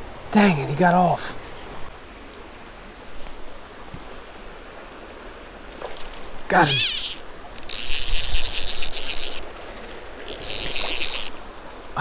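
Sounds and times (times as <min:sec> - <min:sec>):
fishing reel clicker ratcheting: 0:06.0 - 0:12.0.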